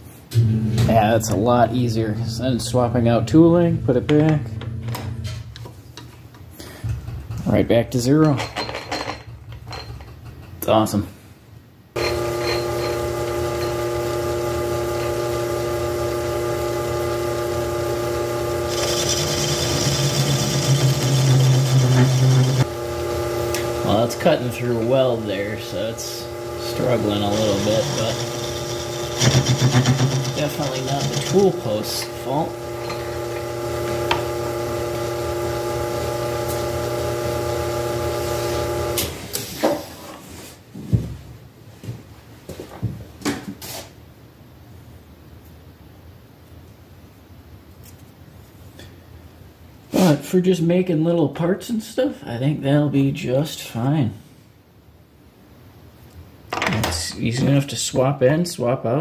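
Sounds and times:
metal lathe humming: 12.0s - 39.2s.

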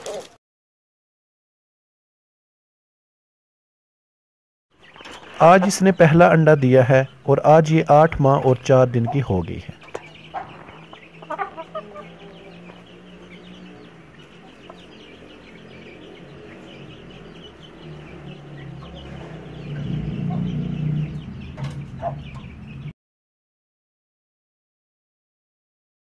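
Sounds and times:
hen clucking: 0.0s - 0.4s, 4.8s - 22.9s.

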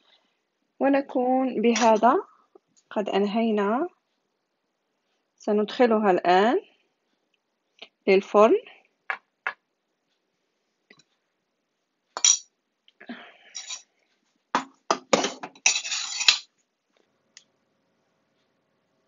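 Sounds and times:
faint steady hum: 0.0s - 19.0s
metal pie tin clattering: 15.0s - 16.5s.

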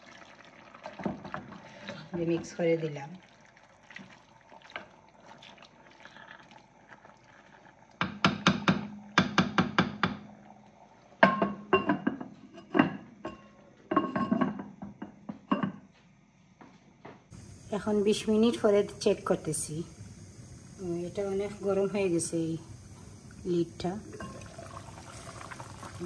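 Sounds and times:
taps on a clay pot: 8.0s - 10.2s.

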